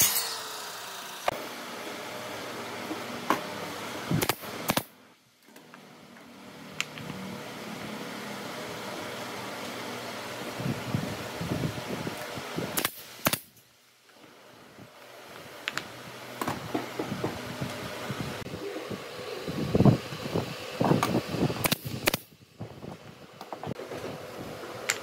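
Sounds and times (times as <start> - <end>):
steady background hum: 0.0 - 25.0
nail gun firing: 4.2 - 4.9, 12.8 - 13.5, 21.6 - 22.3.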